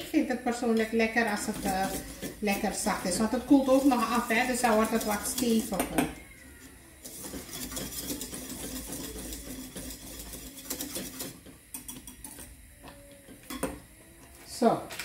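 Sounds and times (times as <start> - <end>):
whisk scraping a saucepan: 0.0 - 12.4
whisk knocking on pan: 0.5 - 6.3, 7.0 - 12.1.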